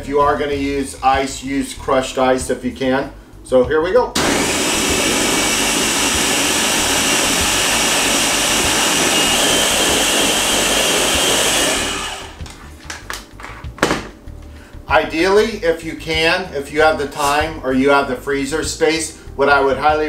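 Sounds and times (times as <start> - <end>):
blender running: 4.2 - 12.5.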